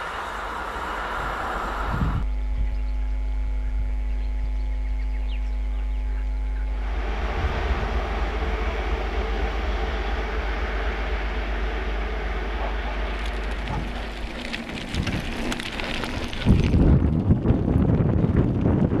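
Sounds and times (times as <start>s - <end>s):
wind buffeting microphone: 0.0s - 2.3s, 6.7s - 19.0s
electric locomotive hum and rumble: 0.0s - 19.0s
level tones: 6.7s - 15.6s
sharp clicks and rattles: 12.2s - 19.0s.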